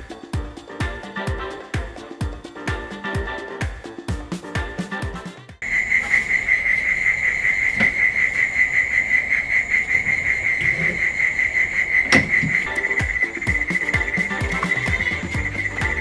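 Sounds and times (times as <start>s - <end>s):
cricket chirring: 5.6s - 16.0s.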